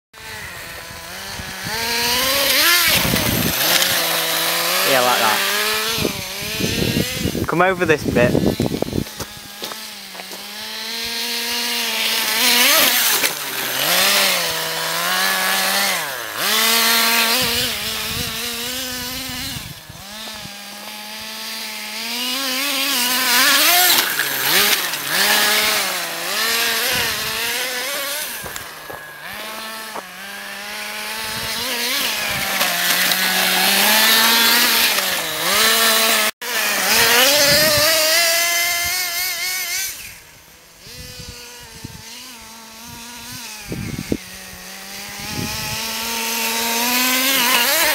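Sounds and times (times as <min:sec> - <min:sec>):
model truck engine buzzing whine: 0:00.2 - 0:47.9.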